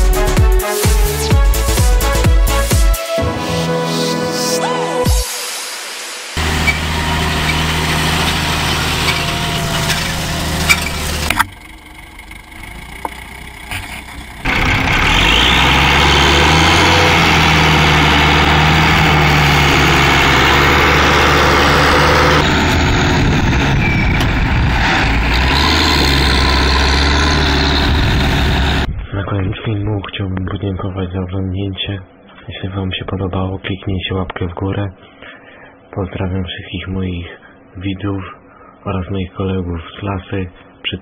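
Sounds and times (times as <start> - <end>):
tractor diesel engine running: 6.4 - 30.0.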